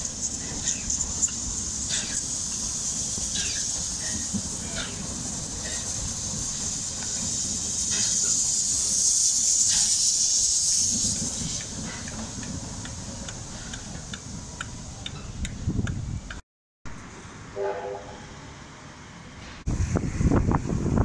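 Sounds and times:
steam locomotive hissing: 0.0s - 16.3s.

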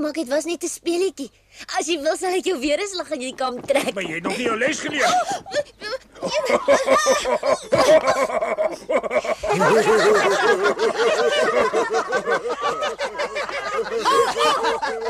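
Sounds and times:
cartoon characters laughing: 4.3s - 15.0s.

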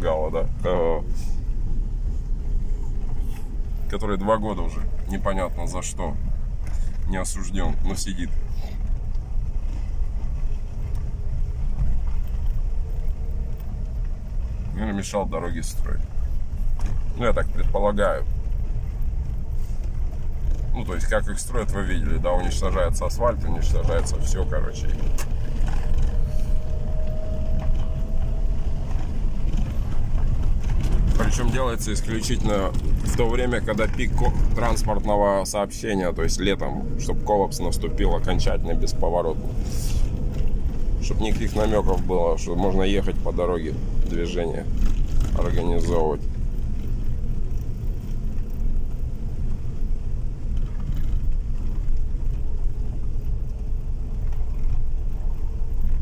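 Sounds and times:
car engine and tyres rumbling: 0.0s - 56.0s
faint steady whine: 0.0s - 56.0s.

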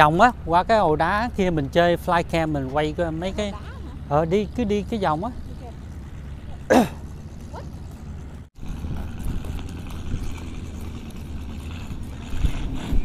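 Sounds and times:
wind rumbling on microphone: 5.5s - 13.0s.

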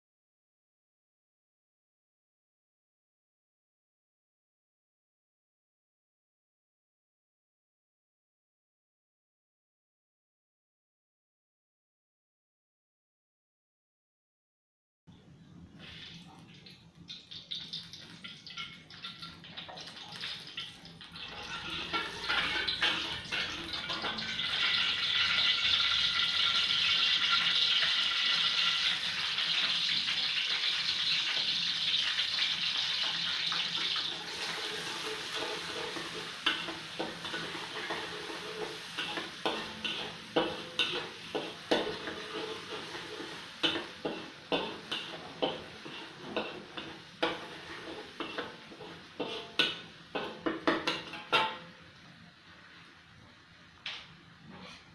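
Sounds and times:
garlic sizzling in hot oil: 15.8s - 53.9s
metal spatula scraping a wok: 18.4s - 32.2s, 32.9s - 51.7s, 54.4s - 54.9s.

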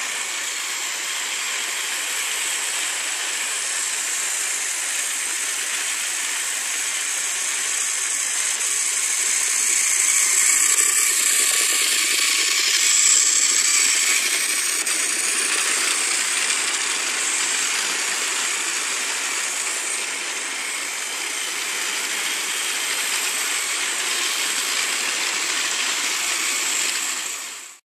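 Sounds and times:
toy train whirring and rattling: 0.0s - 27.8s.

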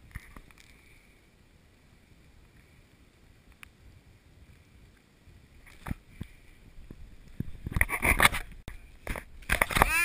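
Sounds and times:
light ticks: 3.5s - 3.8s.

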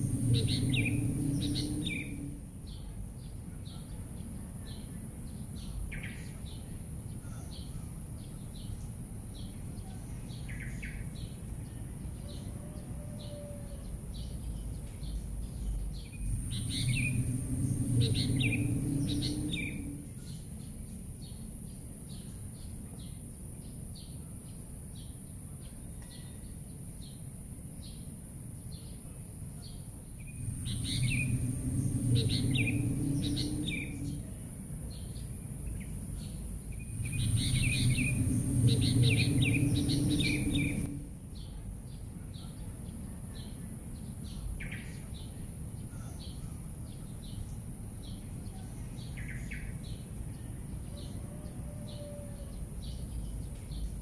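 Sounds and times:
steady high hiss: 0.0s - 2.6s, 15.8s - 20.9s, 29.3s - 41.3s
low rumble: 0.0s - 3.4s, 14.4s - 21.0s, 30.1s - 42.0s
small birds chirping: 0.0s - 12.5s, 13.2s - 28.0s, 28.7s - 51.2s.

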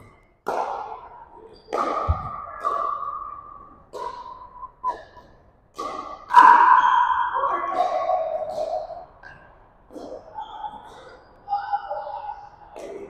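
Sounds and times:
paddles hitting plastic ball: 1.7s - 6.6s.

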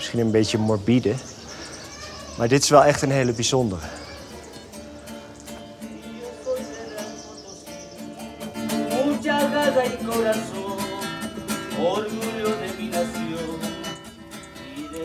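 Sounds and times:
acoustic guitar strumming: 2.8s - 15.0s
person singing: 5.9s - 15.0s.

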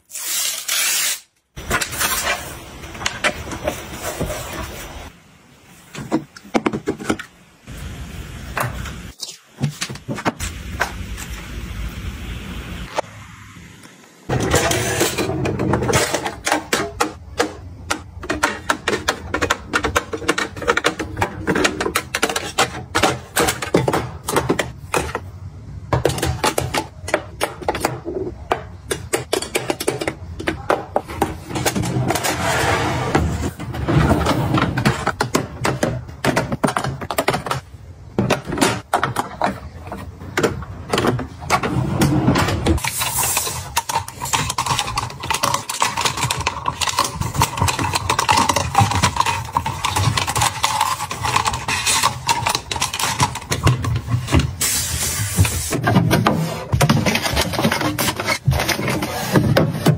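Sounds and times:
plastic makeup items clicking and tapping: 15.9s - 25.3s, 34.8s - 41.4s, 42.8s - 54.5s.

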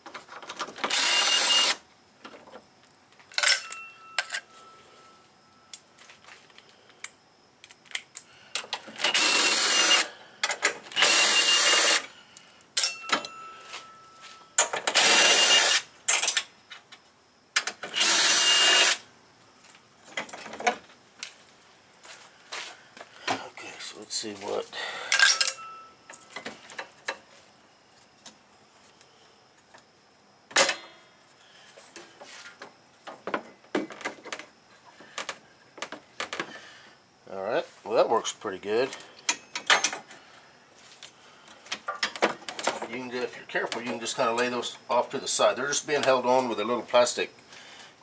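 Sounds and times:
cordless screwdriver whirring: 9.0s - 10.1s, 11.0s - 12.0s, 17.9s - 19.0s
metal clicks and clinks: 12.8s - 13.4s, 25.1s - 26.4s.

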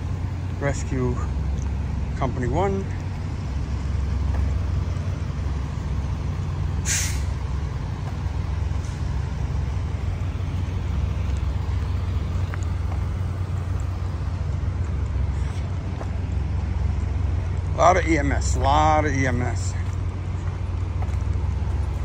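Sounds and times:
diesel engines idling: 0.0s - 22.0s
air brake hiss: 6.8s - 7.4s.

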